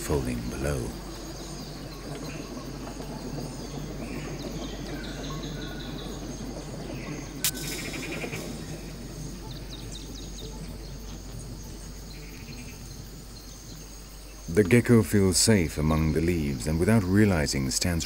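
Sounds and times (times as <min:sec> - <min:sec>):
insects chirping: 0:00.0 - 0:18.0
steady background hiss: 0:00.0 - 0:18.0
sharp click: 0:07.4 - 0:08.4.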